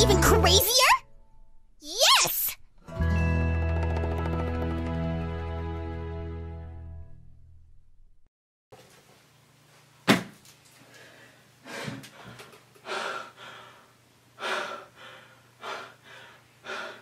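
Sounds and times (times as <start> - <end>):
man gasping for breath: 10.9 - 17.0.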